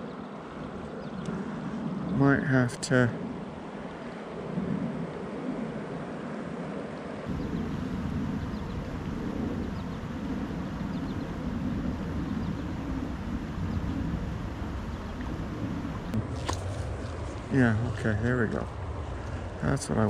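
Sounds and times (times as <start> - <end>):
river flowing: 5.9 - 19.7
deep rumble: 7.3 - 20.0.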